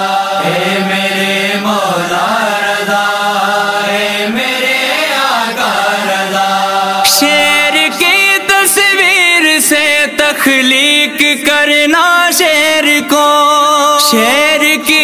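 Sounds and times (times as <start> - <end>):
steady held drone: 0.0 - 9.2
wordless vocal chorus chanting: 0.0 - 15.0.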